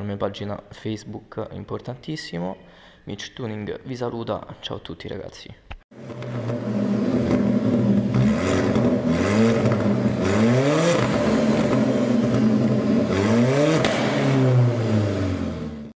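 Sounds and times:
car engine revving: 6.0s - 15.9s.

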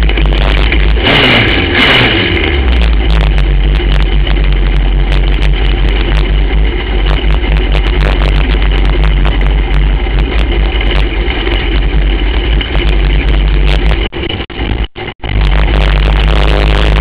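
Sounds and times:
kart engine running hard: 0.0s - 17.0s
loud rush of noise: 0.0s - 17.0s.

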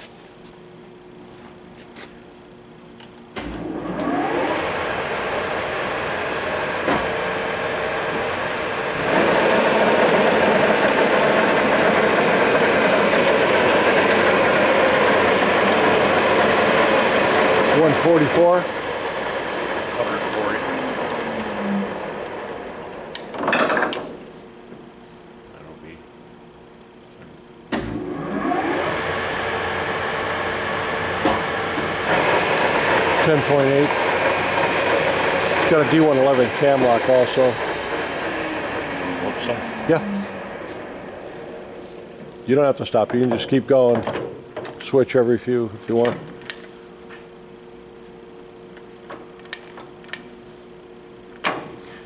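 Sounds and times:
lathe starting with clunk: 3.4s - 5.5s, 6.4s - 7.3s, 31.2s - 39.5s
lathe running: 3.5s - 23.4s, 28.0s - 43.2s.

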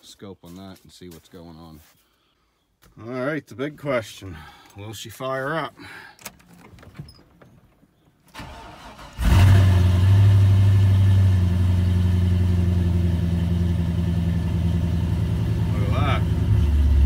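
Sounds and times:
car engine starting and idling: 6.2s - 17.0s.

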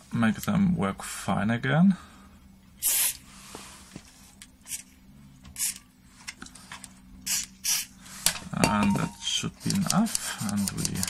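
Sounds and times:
aerosol spray hisses: 2.8s - 3.2s.

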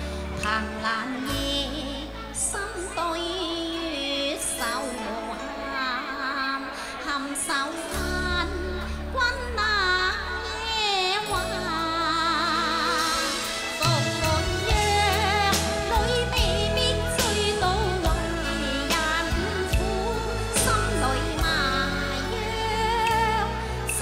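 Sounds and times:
woman singing with vibrato: 0.0s - 24.0s
instrumental accompaniment: 7.4s - 24.0s.

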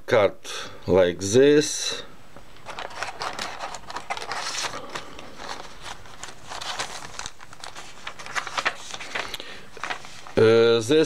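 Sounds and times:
paper rustling: 2.6s - 10.6s.

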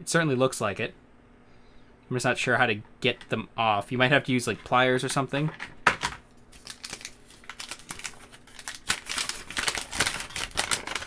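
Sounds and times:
paper crinkling and rustling: 6.5s - 11.0s.

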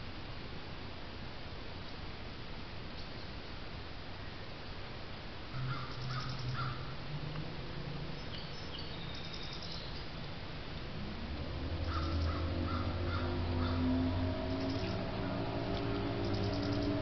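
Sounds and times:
low steady hum: 0.0s - 17.0s
crows cawing: 5.6s - 6.9s, 11.8s - 15.2s.

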